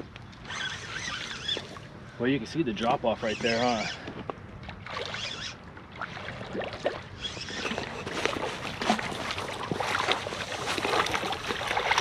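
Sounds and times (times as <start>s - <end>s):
water sloshing and splashing: 0.0s - 2.1s, 3.2s - 12.0s.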